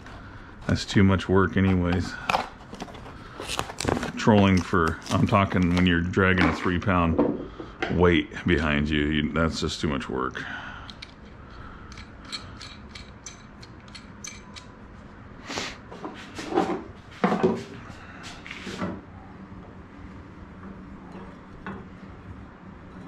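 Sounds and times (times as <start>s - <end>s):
hard parts scraping and clunking: 15.8s - 19.0s.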